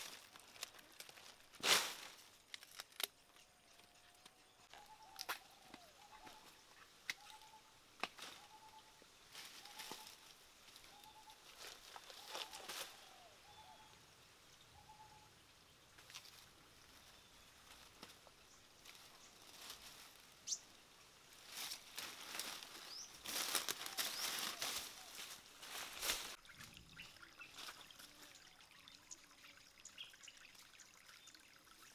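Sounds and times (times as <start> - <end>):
dry leaves crackling and rustling: 0.0 - 3.1, 9.3 - 13.4, 16.0 - 20.6, 21.3 - 26.4
crunching footsteps: 21.4 - 26.4.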